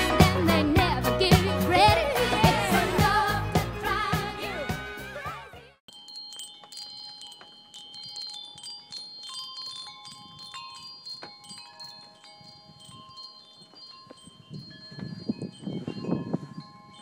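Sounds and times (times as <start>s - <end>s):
wind chimes ringing: 5.9s - 17.0s.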